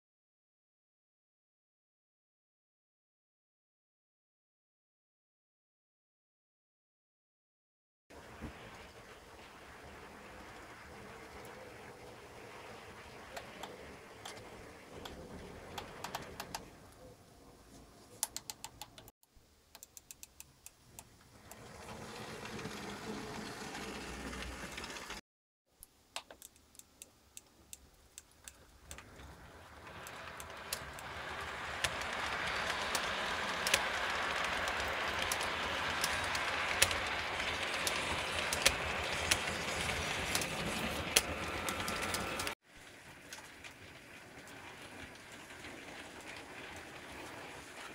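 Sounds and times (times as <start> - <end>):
model train running noise: 8.1 - 17.0, 21.3 - 25.2, 28.8 - 47.9
model train wheels clicking: 10.0 - 17.1, 19.7 - 25.2, 26.2 - 47.9.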